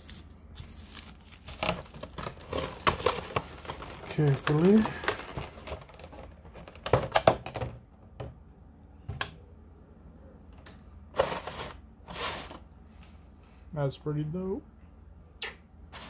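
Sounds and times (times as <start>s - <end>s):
packaging rustling: 0.6s - 7.2s
plastic packaging crackling: 0.7s - 7.0s.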